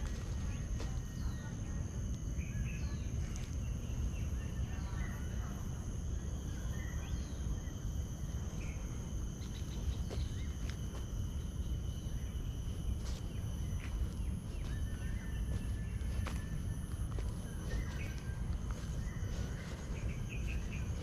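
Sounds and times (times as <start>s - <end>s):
insects trilling: 0.0s - 21.0s
bird chirps: 13.7s - 21.0s.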